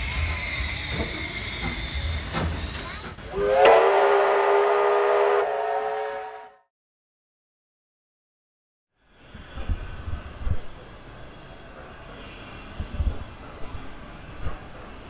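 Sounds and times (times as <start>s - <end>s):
steam hissing: 0.0s - 6.3s
locomotive chime whistle: 3.3s - 6.6s.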